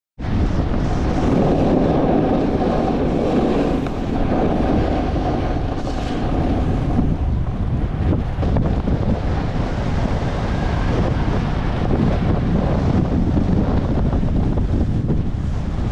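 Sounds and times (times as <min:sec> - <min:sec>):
wind rushing over microphone: 0:00.2 - 0:15.9
skis running over snow: 0:00.3 - 0:07.2.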